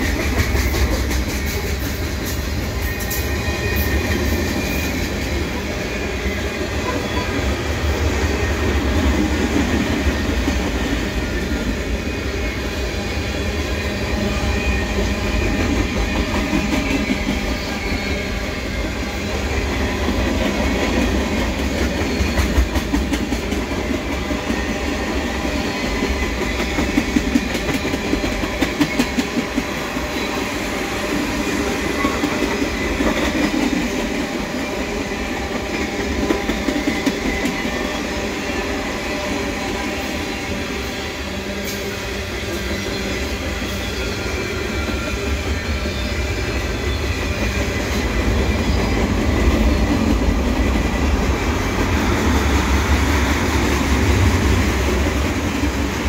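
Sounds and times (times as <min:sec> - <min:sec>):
freight train wheels rumbling on rails: 0:00.0 - 0:56.0.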